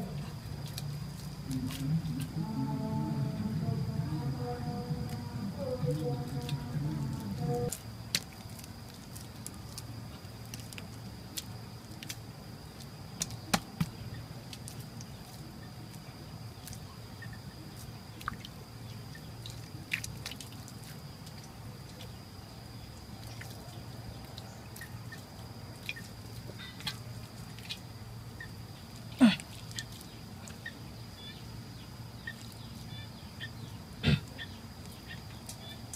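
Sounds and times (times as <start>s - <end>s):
hands slapping wet mud: 12.8s - 15.0s.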